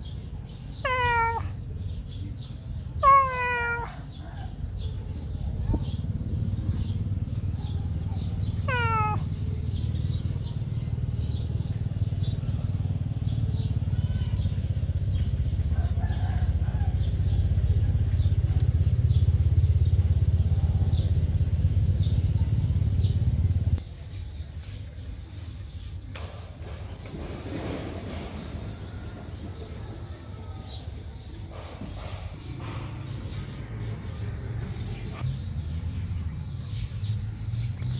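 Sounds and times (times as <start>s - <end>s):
kitten meowing: 0.8s - 1.6s, 3.0s - 4.4s, 8.6s - 9.3s.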